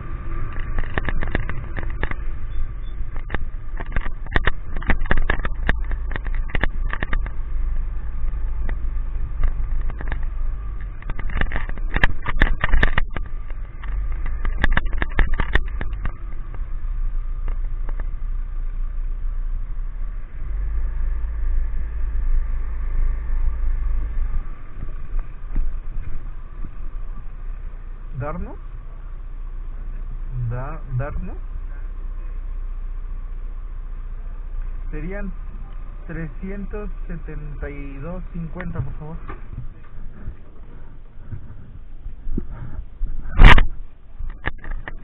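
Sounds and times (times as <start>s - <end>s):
sharp knocks and rattles: 0.0s - 18.2s, 38.4s - 45.0s
vehicle rumble on wet street: 0.0s - 45.0s.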